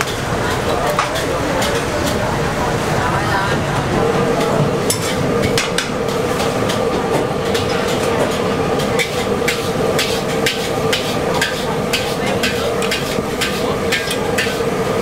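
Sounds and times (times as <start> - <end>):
oil frying: 0.0 - 2.9, 3.8 - 15.0
gas burner rushing: 0.0 - 15.0
metal spatula scraping wok: 7.4 - 14.9.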